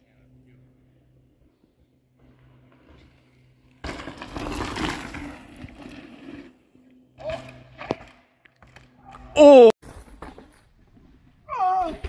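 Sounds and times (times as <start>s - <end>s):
bike tyres grinding over dirt: 2.0s - 9.1s
bike clattering rattle: 2.2s - 6.5s.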